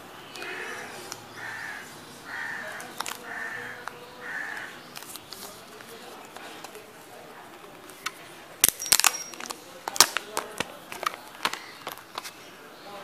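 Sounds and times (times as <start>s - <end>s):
bird calling harshly: 0.2s - 5.0s.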